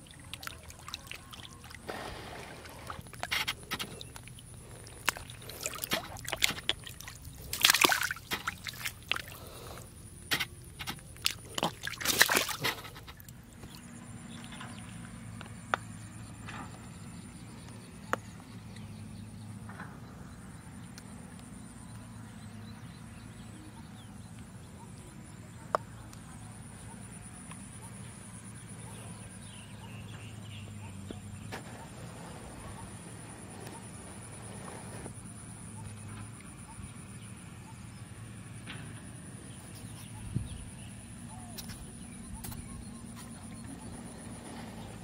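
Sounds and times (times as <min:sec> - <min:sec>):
hand splashing in shallow water: 0:00.0 - 0:09.7, 0:10.7 - 0:13.8
background hum with high tone: 0:00.0 - 0:45.0.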